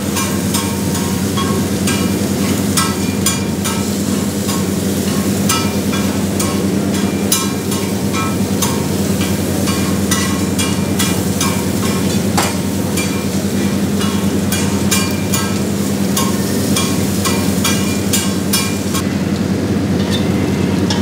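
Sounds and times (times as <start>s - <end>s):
metal spatula clanking on iron pan: 0.0s - 19.0s
ghee sizzling: 0.0s - 21.0s
steady low hum: 0.0s - 21.0s.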